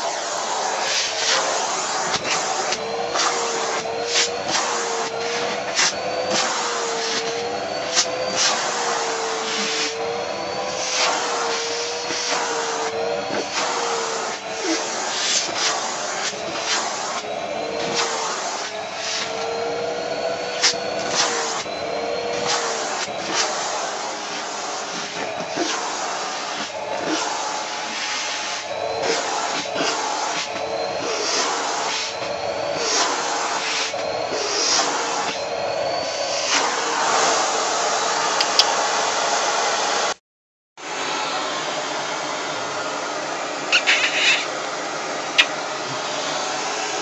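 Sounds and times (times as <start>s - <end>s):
vacuum cleaner running: 0.0s - 40.2s, 40.8s - 47.0s
nozzle scratching over fur: 43.7s - 44.5s.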